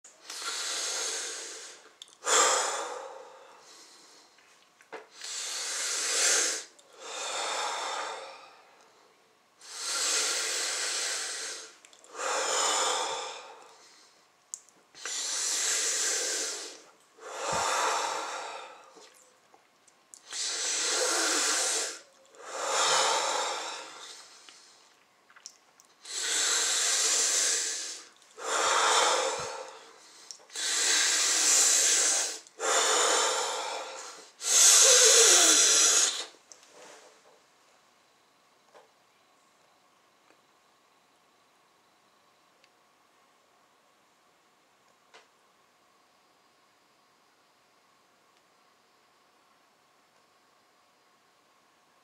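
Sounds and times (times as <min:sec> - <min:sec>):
person breathing deeply: 0:00.1 - 0:04.4, 0:05.1 - 0:14.3, 0:15.0 - 0:19.2, 0:20.2 - 0:25.0, 0:26.0 - 0:37.1.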